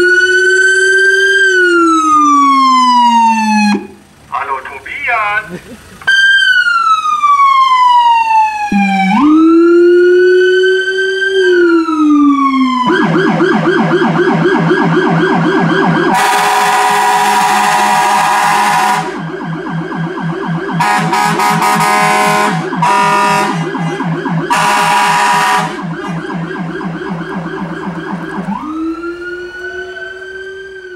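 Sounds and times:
electronic siren wailing and warbling: 0:00.0 - 0:04.0, 0:06.1 - 0:30.9
deep low siren tone: 0:00.0 - 0:04.1, 0:06.1 - 0:30.9
air horn blasts: 0:16.1 - 0:19.2, 0:20.8 - 0:26.3.

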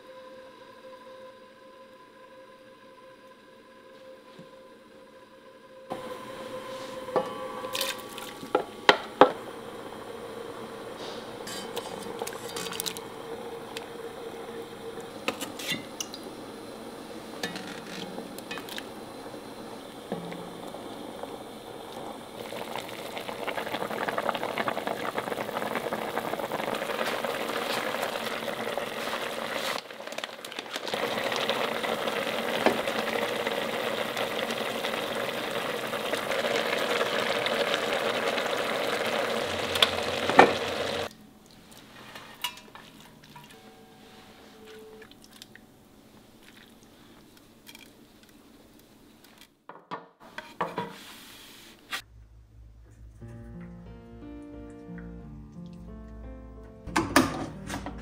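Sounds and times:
food bubbling in pot: 0:07.6 - 0:43.6
spoon scraping while stirring: 0:11.4 - 0:12.8.

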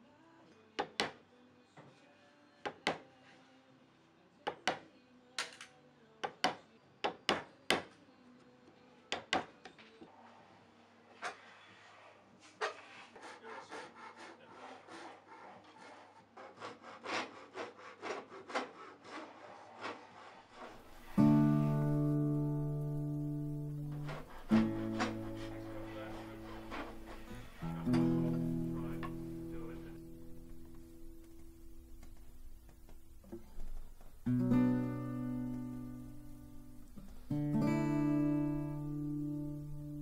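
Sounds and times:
hand saw cutting wood: 0:12.4 - 0:21.1, 0:23.9 - 0:27.7
strummed acoustic guitar: 0:20.8 - 0:31.9, 0:34.2 - 0:40.0.

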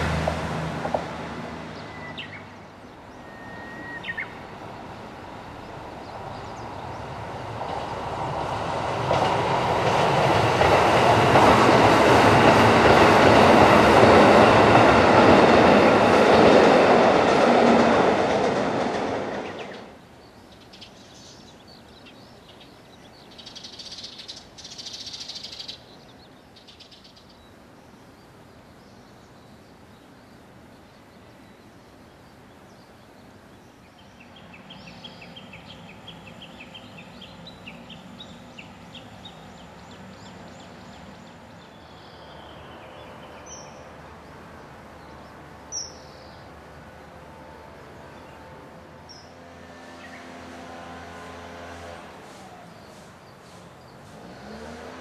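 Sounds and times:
wheels clattering on rails: 0:00.0 - 0:01.3, 0:06.1 - 0:19.9
diesel train passing: 0:00.0 - 0:55.0.

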